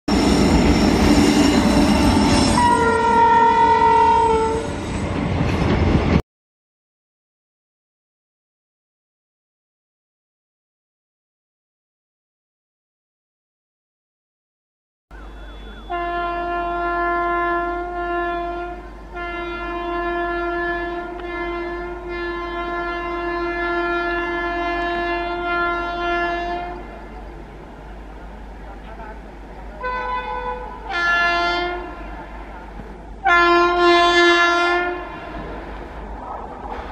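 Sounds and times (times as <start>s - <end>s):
train rumbling on rails: 0.1s - 6.2s, 15.1s - 36.9s
locomotive two-tone horn: 1.3s - 4.9s, 15.1s - 27.1s, 29.8s - 32.4s, 33.2s - 35.5s.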